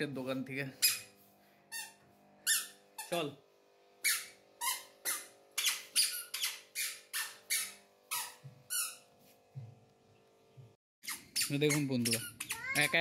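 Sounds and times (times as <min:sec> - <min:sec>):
squeaky shoes squeaking: 0:00.8 - 0:01.1, 0:04.0 - 0:09.0, 0:11.0 - 0:13.0.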